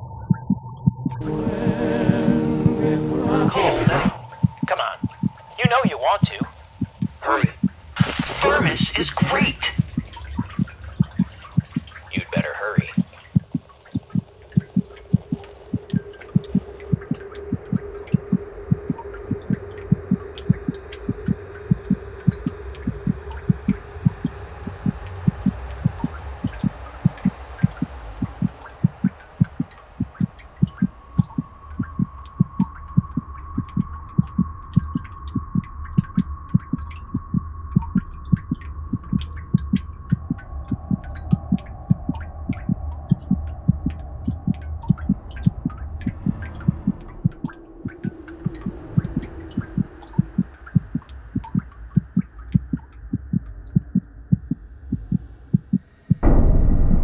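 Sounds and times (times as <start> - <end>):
heartbeat double thumps: 0.0 - 8.4, 9.2 - 57.0
low hum: 0.0 - 57.0
steady high tone: 1.2 - 6.3.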